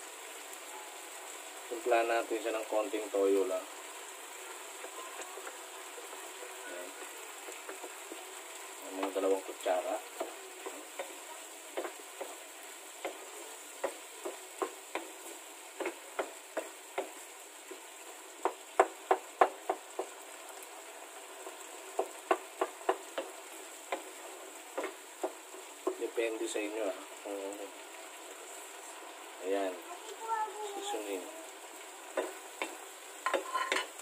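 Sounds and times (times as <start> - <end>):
sauce sizzling: 0.0 - 34.0
wooden spoon scraping a pan: 4.2 - 20.2, 21.2 - 26.5, 32.1 - 34.0.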